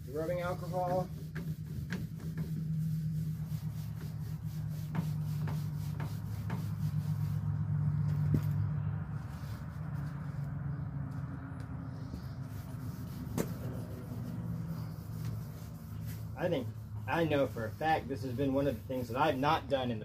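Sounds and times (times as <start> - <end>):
paper towel rubbing on casing: 0.0 - 11.3, 11.9 - 19.9
steady low hum: 0.0 - 19.7.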